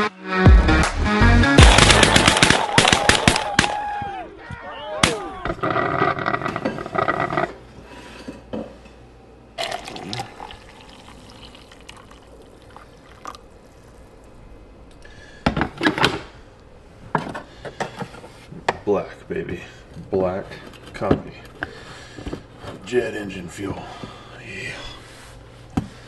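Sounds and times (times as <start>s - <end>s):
coffee pouring into steel tumbler: 9.6s - 14.2s.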